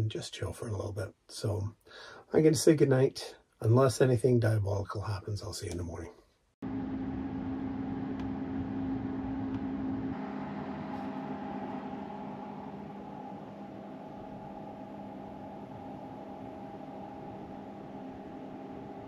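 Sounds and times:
engine humming: 6.6s - 19.0s.

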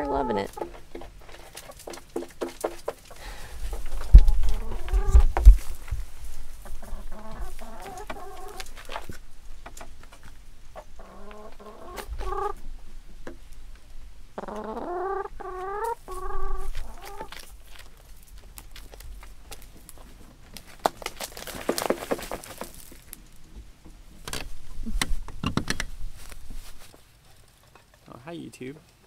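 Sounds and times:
hens clucking and calling: 0.0s - 12.8s, 14.3s - 18.4s.

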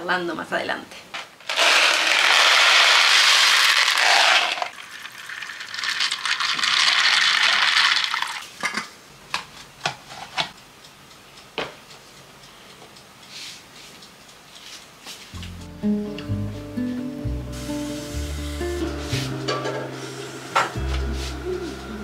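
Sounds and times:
dried chickpeas rattling into tub: 1.4s - 8.4s
water pouring from kettle: 1.6s - 8.5s.

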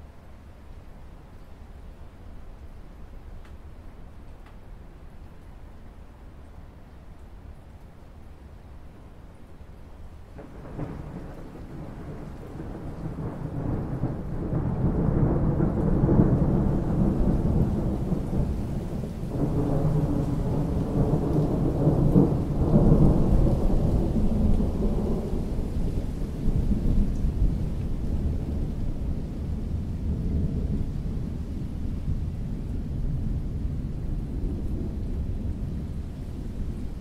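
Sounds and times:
rain falling: 0.0s - 37.0s
thunder rumbling: 10.4s - 37.0s.

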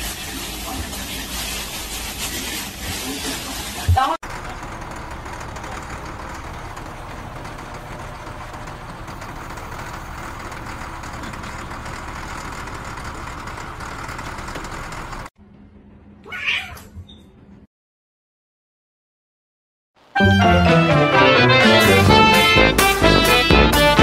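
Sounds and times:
grader engine running: 4.2s - 15.3s, 20.3s - 24.0s
kitten meowing: 16.2s - 16.9s.

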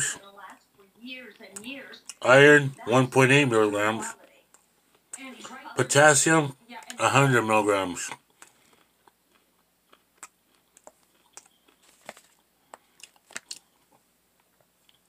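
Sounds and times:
person chewing: 1.6s - 2.3s, 8.1s - 15.0s.

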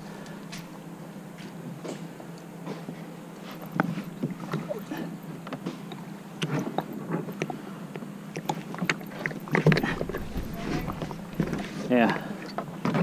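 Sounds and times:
kayak hull knocking: 9.4s - 11.8s.

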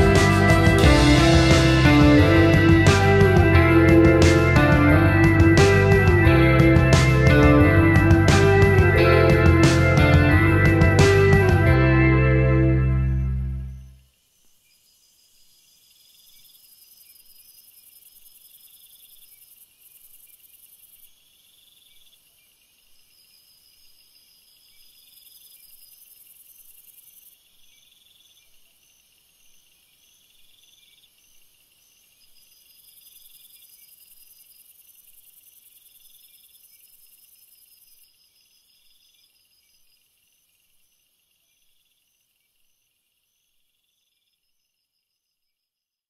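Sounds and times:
steady high hiss: 0.0s - 21.4s
insects chirping: 12.4s - 45.9s.

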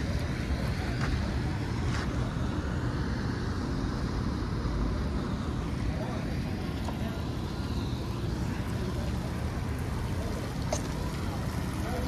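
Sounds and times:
hiss from wet street: 0.0s - 12.0s.

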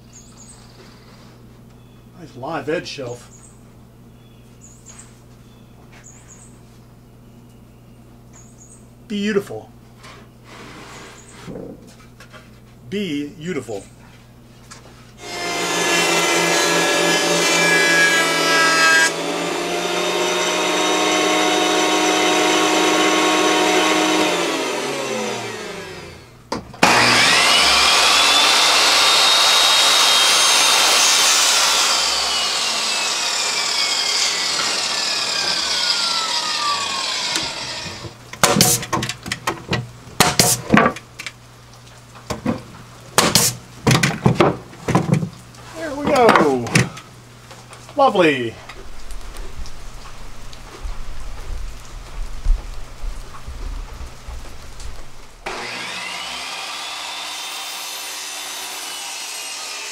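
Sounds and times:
boards knocking and clattering: 11.4s - 12.5s, 36.6s - 41.3s, 42.3s - 45.4s
table saw cutting wood: 15.2s - 39.0s, 40.2s - 40.6s, 43.2s - 43.6s, 55.4s - 59.9s.

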